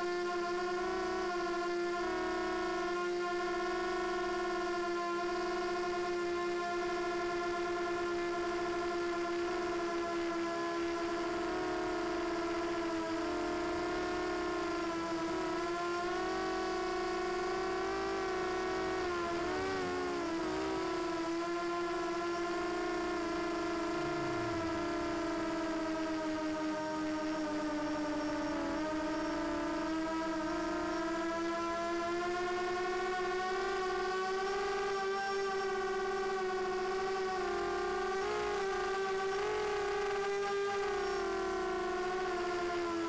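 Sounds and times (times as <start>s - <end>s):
quadcopter motors whining: 0.0s - 43.0s.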